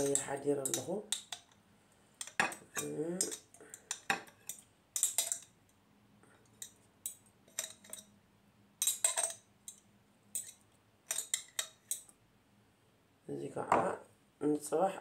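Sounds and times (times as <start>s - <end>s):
spoon scraping glass jar: 7.5s - 8.1s, 8.8s - 9.8s, 10.4s - 12.0s.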